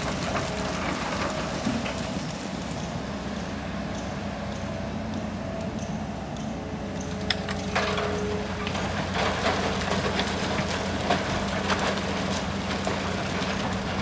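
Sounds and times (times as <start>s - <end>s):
diesel engine running: 0.0s - 14.0s.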